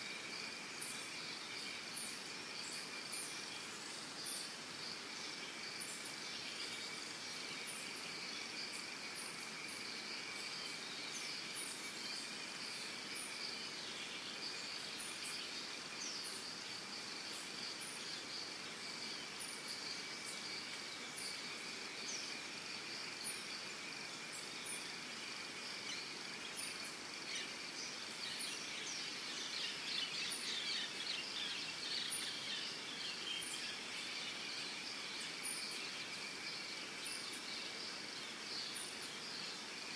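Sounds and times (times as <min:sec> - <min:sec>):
insects buzzing: 0:00.0 - 0:39.9
very high insect chirp: 0:00.0 - 0:39.9.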